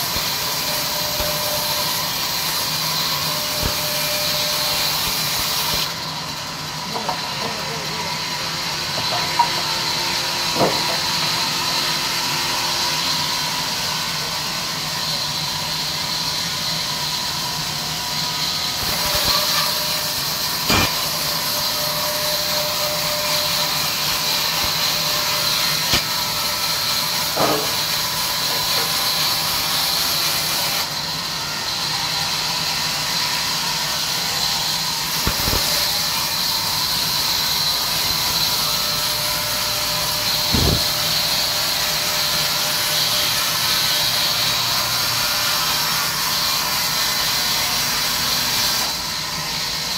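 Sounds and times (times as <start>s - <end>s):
band saw cutting log: 0.0s - 49.9s.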